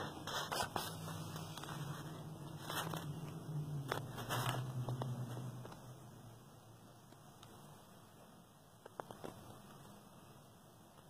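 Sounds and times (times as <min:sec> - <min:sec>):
faint room hiss: 0:00.0 - 0:11.0.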